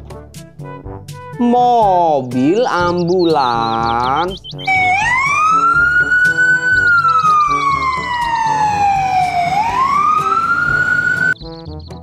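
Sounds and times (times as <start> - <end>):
ambulance siren wailing: 3.6 - 11.4.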